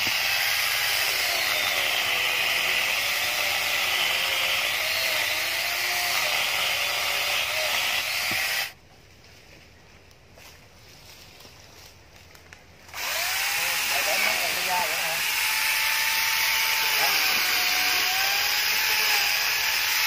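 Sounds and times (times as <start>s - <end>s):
angle grinder cutting a branch: 0.0s - 8.8s, 12.9s - 20.0s.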